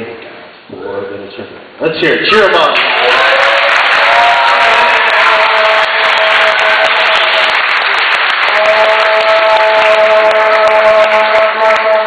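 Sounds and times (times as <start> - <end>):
crowd applauding and cheering: 2.6 - 12.0.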